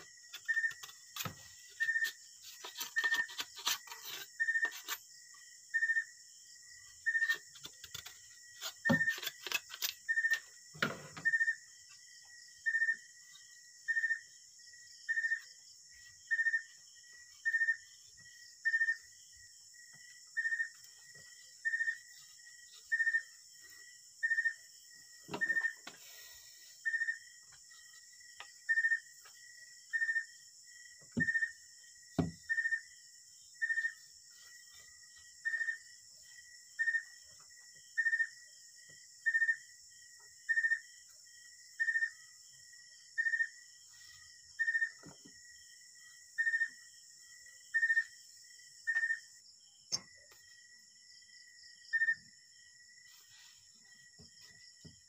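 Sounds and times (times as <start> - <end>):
knife cutting bamboo: 0.4 - 5.0, 7.3 - 10.4.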